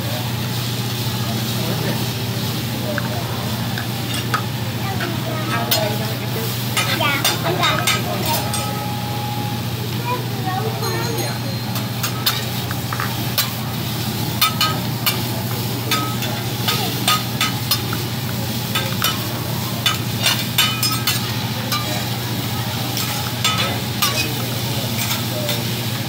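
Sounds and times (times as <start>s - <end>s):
food sizzling: 0.0s - 26.0s
metal spatulas scraping griddle: 4.0s - 4.4s, 5.0s - 8.6s, 12.0s - 15.3s, 19.8s - 22.3s, 22.9s - 25.8s.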